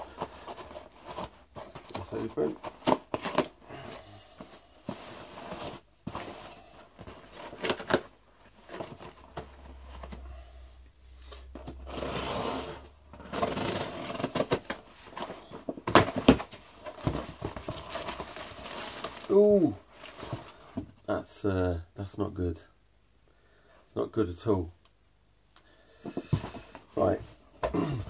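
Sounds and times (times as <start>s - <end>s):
cardboard box rustling: 4.4s - 10.2s, 11.6s - 20.9s.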